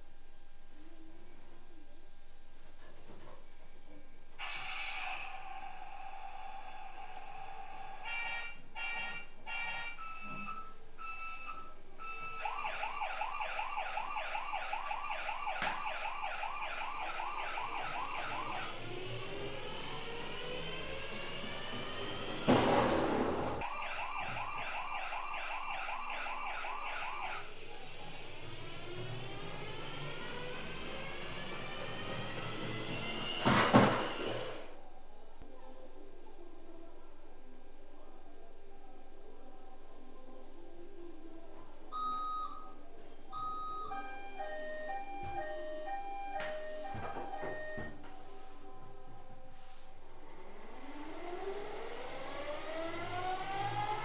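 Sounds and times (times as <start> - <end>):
toy electronic siren: 4.4 - 22.6, 23.6 - 34.7, 42.0 - 48.0, 50.6 - 54.0
loud noisy bursts: 17.6 - 23.6, 27.1 - 34.7.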